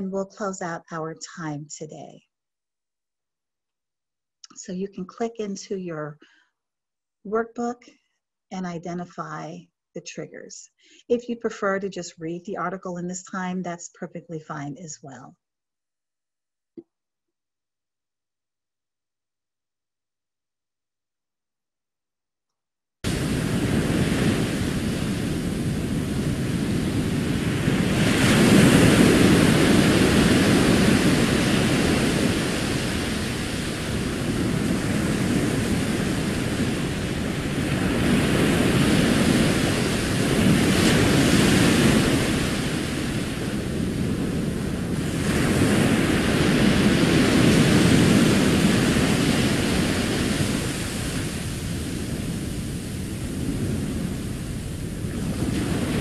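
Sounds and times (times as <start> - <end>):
ocean surf washing onto beach: 23.1 - 56.0.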